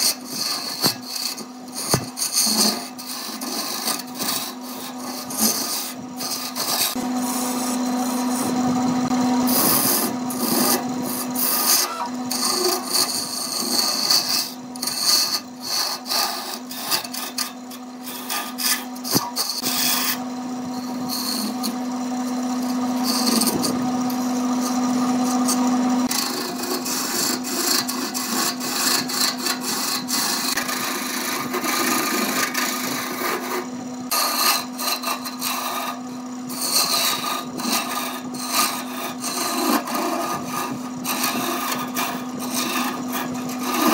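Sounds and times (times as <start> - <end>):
chisel scraping spinning wood: 0.0 - 43.9
wood lathe motor hum: 0.0 - 43.9.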